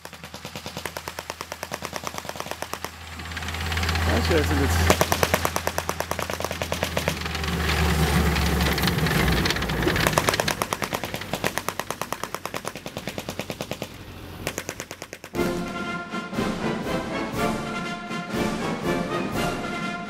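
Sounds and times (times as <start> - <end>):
track links clattering: 1.0 - 13.9
low engine note: 2.2 - 12.1
music: 15.4 - 20.0.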